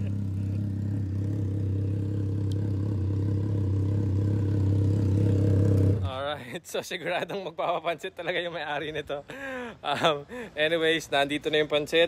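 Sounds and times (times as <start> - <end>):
motorcycle engine idling: 0.0 - 6.3.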